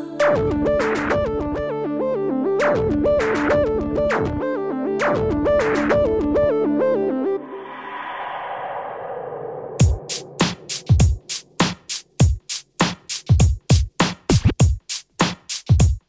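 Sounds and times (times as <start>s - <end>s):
electronic synthesizer music: 0.0s - 7.9s.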